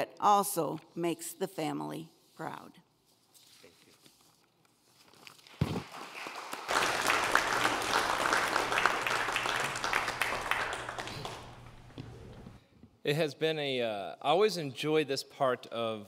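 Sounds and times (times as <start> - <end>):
congregation applauding: 5.8 - 12.5.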